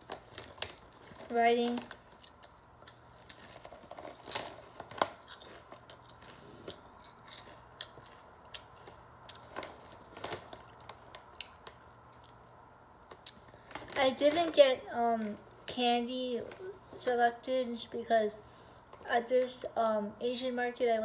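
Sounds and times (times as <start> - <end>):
potato chips crunching: 0.0 - 12.4.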